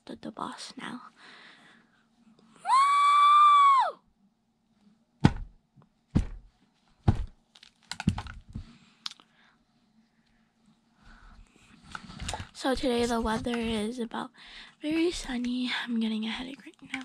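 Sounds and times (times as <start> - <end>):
dolls thudding on floor: 5.2 - 7.4.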